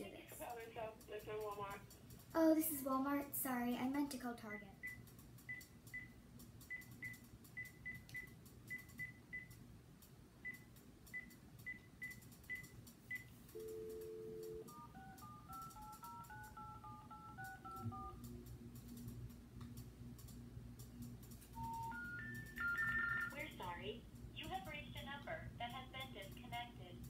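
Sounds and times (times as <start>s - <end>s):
keypad beeps: 4.5s - 9.6s, 10.4s - 18.2s, 21.6s - 23.4s
touch-tone dialing: 12.0s - 18.2s, 21.6s - 23.4s
dial tone: 13.6s - 18.2s, 21.6s - 23.3s.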